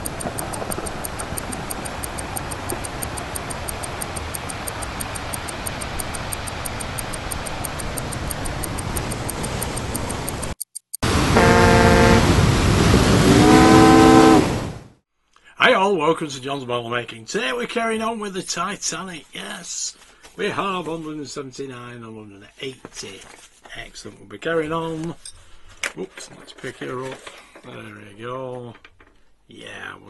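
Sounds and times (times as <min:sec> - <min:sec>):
fast regular ticking: 0:00.0 - 0:11.0
steady rushing noise: 0:00.0 - 0:14.8
ship's steam whistle blasts: 0:11.3 - 0:12.3, 0:13.2 - 0:14.6.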